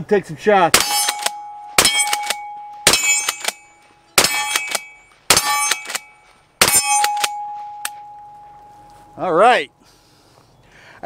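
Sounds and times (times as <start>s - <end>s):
shotgun shots: 0.7s - 7.4s
steel targets ringing: 0.7s - 9.6s.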